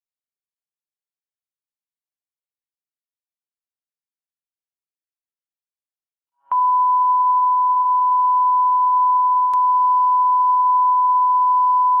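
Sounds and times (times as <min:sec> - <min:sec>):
continuous test tone beep: 0:06.5 - 0:12.0.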